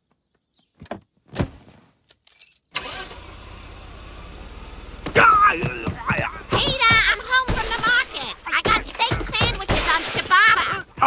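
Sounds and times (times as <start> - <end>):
car running with low hum: 2.8 - 7.5.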